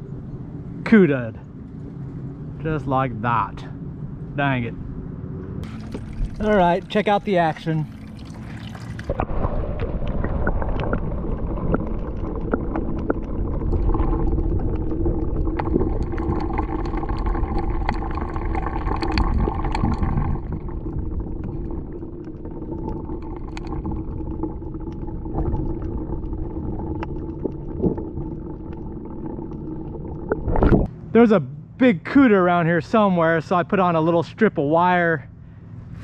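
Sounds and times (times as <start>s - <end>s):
underwater low rumble: 0.0s - 31.0s
water gurgling: 5.6s - 30.9s
small underwater clicks: 8.9s - 30.9s.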